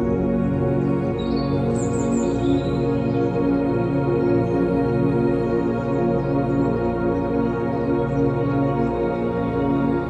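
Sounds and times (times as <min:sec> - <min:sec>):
slow ambient music: 0:00.0 - 0:10.0.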